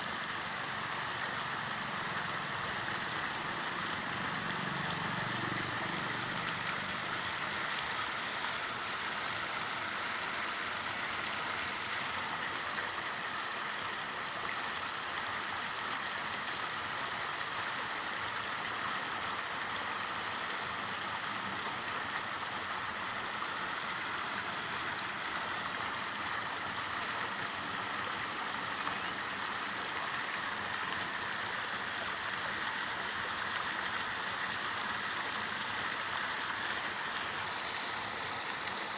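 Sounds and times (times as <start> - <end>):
rain falling: 0.0 - 13.5, 35.8 - 38.9.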